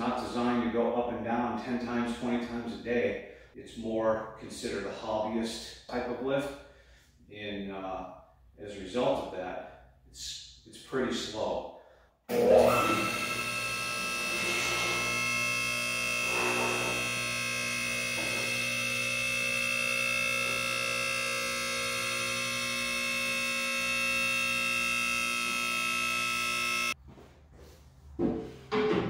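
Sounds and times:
hydraulic pump humming and whining: 0:12.3 - 0:27.0.

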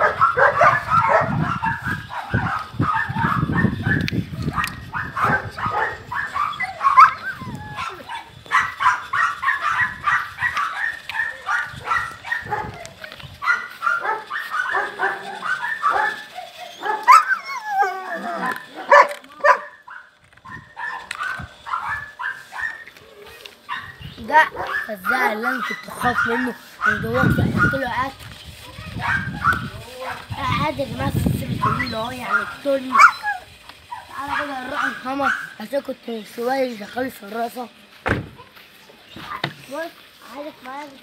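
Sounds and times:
dog whining: 0:00.0 - 0:19.8, 0:20.4 - 0:27.7, 0:31.6 - 0:35.6
dogs barking: 0:00.0 - 0:28.0, 0:28.6 - 0:30.7, 0:31.5 - 0:35.7.

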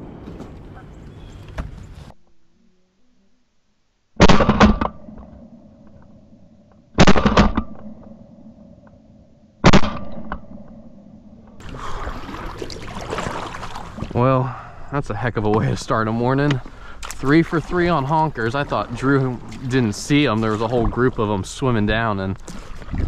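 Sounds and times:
shotgun blasts with echo: 0:04.2 - 0:05.4, 0:07.0 - 0:08.1, 0:09.6 - 0:10.7
rushing water: 0:11.6 - 0:23.0.

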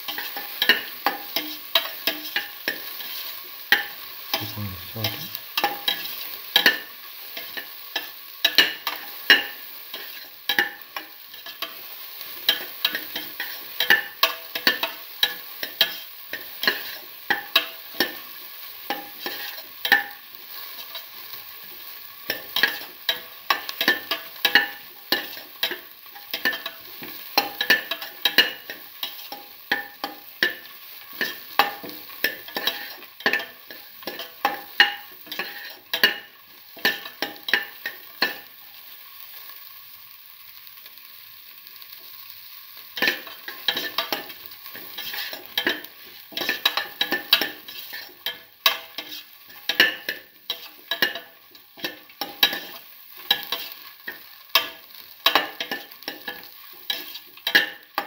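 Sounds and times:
metal spoon stirring: 0:43.0 - 0:51.2.

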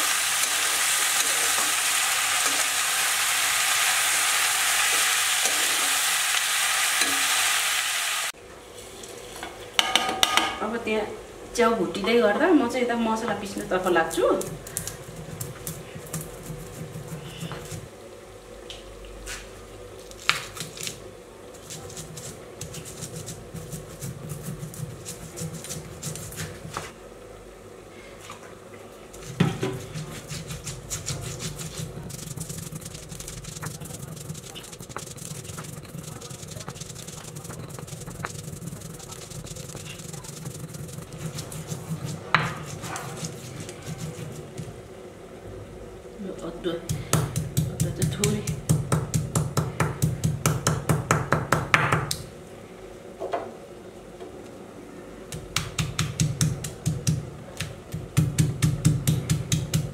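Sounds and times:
stone grinding seeds: 0:29.2 - 0:44.7.

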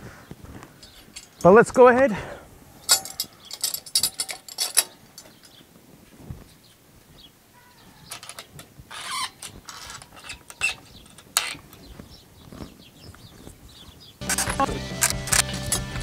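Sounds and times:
hand tools clicking and tapping: 0:00.6 - 0:01.5, 0:02.8 - 0:05.6, 0:08.1 - 0:13.3, 0:14.2 - 0:16.0
background music: 0:14.2 - 0:16.0.

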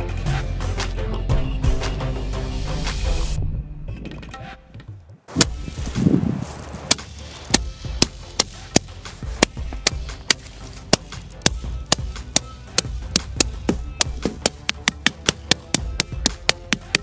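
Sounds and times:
rubber mallet pounding board: 0:06.9 - 0:17.0.

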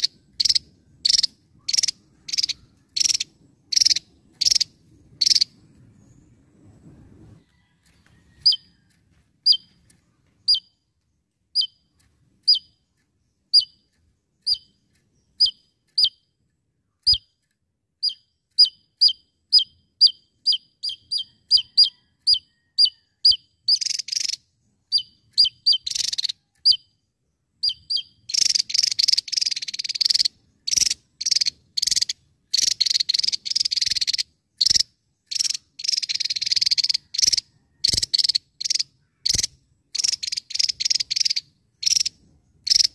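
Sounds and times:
bird buzzy rattling: 0:00.0 - 0:06.9, 0:27.6 - 0:42.9.

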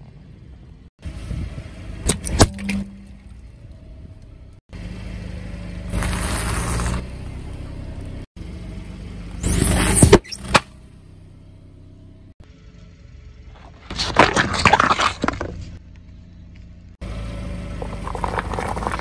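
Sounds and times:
tyre rolling over asphalt: 0:05.9 - 0:07.0, 0:17.7 - 0:19.0
tyre crunching objects: 0:05.9 - 0:07.1, 0:13.5 - 0:15.8, 0:17.7 - 0:19.0
plastic crackling under tyre: 0:17.8 - 0:19.0.

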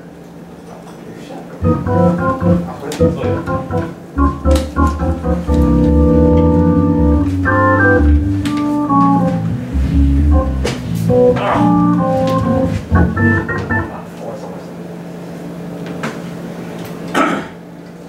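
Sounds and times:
low bass notes: 0:01.6 - 0:14.0
organ playing jazz chords: 0:01.6 - 0:14.4.

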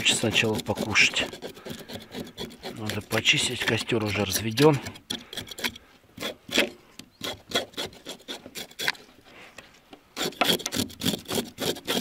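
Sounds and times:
knife scraping fish scales: 0:00.0 - 0:09.1.

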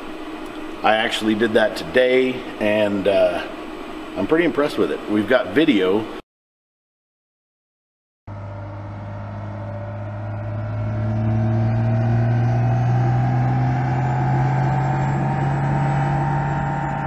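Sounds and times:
diesel engine running under load: 0:08.3 - 0:17.0.

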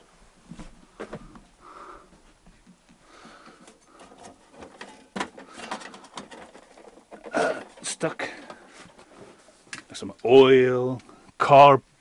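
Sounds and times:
metal toolbox scraping: 0:03.7 - 0:09.1.

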